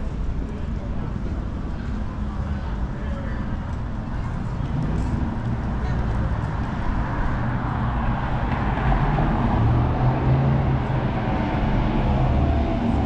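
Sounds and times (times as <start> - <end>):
cars driving by: 3.8 - 13.0.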